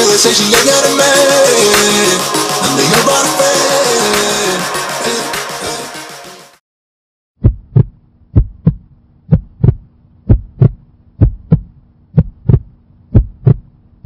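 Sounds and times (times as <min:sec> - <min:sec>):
heartbeat thumps: 0:07.4 - 0:13.7.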